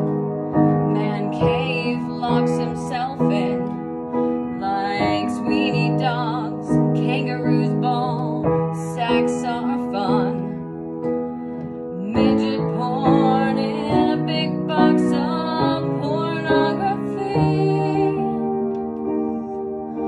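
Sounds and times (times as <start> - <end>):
upright piano chords: 0.0 - 20.0
woman singing with vibrato: 1.0 - 3.7, 4.6 - 10.6, 11.9 - 18.5.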